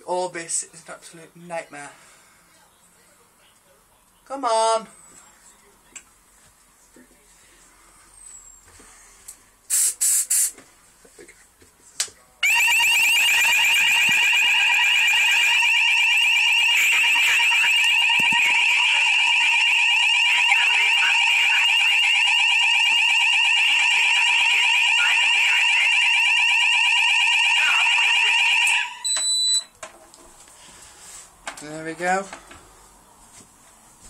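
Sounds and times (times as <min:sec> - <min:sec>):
fire alarm warbling tone: 0:12.4 - 0:29.7.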